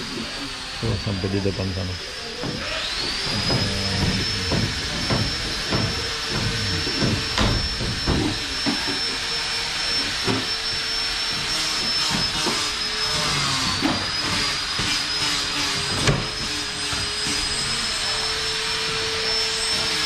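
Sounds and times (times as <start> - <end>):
power tool motor whining: 0.0 - 20.0.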